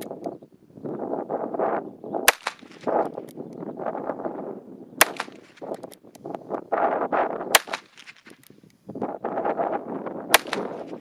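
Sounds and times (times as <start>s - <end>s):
small clicks: 0.0s - 0.4s, 5.0s - 6.4s, 7.7s - 8.8s
revolver gunshot crack: 2.3s - 3.0s, 5.0s - 5.7s, 7.5s - 8.2s, 10.3s - 11.0s.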